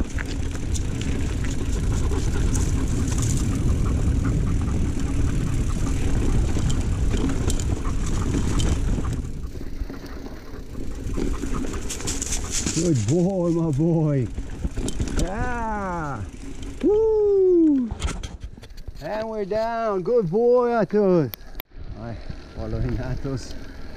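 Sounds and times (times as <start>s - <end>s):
wind rumbling on microphone: 0.0s - 13.2s
tyres rolling over dirt and gravel: 0.0s - 16.8s
bike rattling and clicking: 0.0s - 23.9s.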